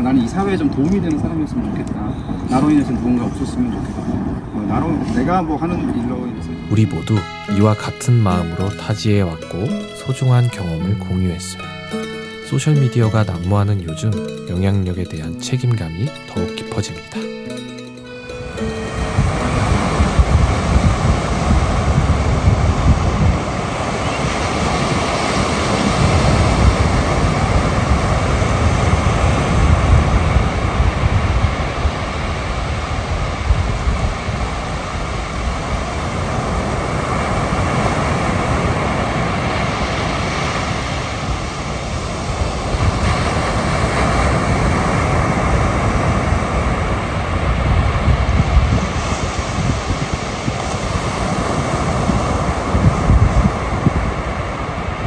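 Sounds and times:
wind buffeting microphone: 0.0 - 6.7, 19.0 - 55.0.

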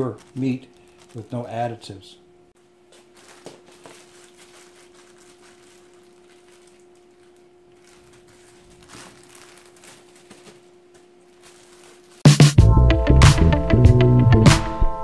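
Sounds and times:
plastic bags rustling and crinkling: 0.0 - 1.8, 2.8 - 12.3.

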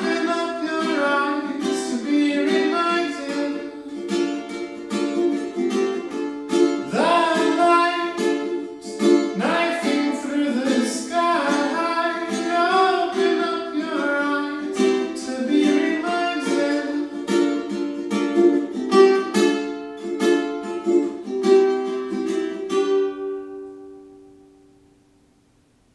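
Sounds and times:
man singing: 0.0 - 4.6, 6.8 - 18.1
ukulele strumming: 0.0 - 25.6.

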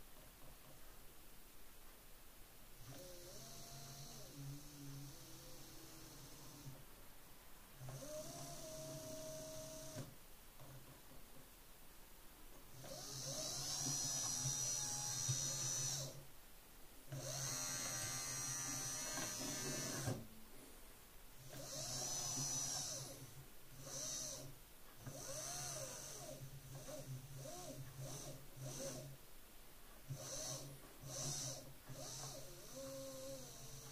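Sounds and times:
power window motor whirring: 12.8 - 16.2, 17.1 - 20.2.

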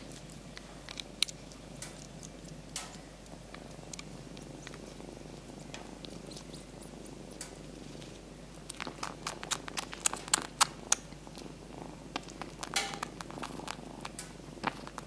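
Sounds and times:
kitten purring: 0.0 - 15.0.

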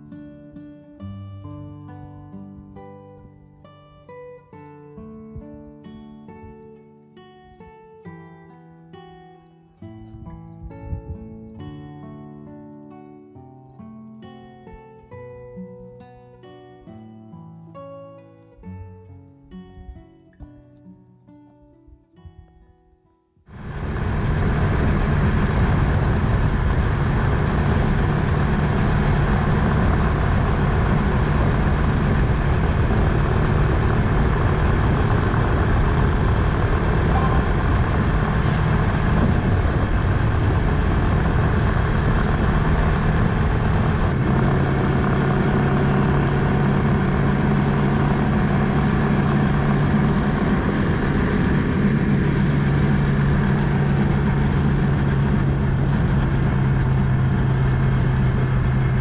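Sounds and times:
wind and road noise: 10.6 - 11.4, 23.5 - 59.0
single-cylinder engine running: 23.5 - 59.0.

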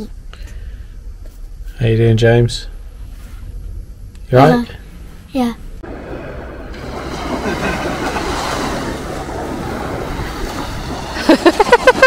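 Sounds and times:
waves breaking on shore: 5.8 - 12.0.

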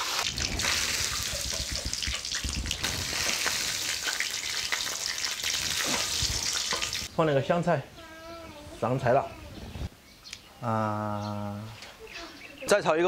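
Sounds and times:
hot oil sizzling and crackling: 0.0 - 7.1.

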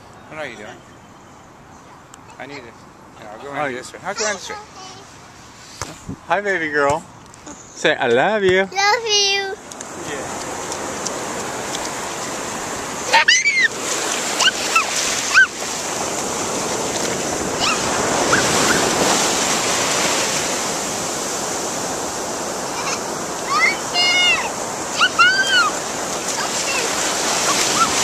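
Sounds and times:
waves washing on shore: 9.7 - 28.0
child squealing: 13.1 - 13.8, 14.4 - 15.6, 17.6 - 18.9, 22.7 - 25.8, 26.6 - 28.0.

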